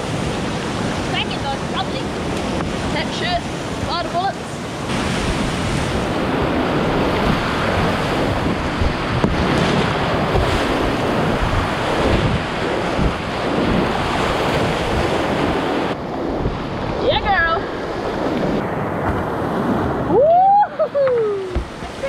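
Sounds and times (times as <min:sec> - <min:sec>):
whitewater rapids rushing: 0:00.0 - 0:16.0.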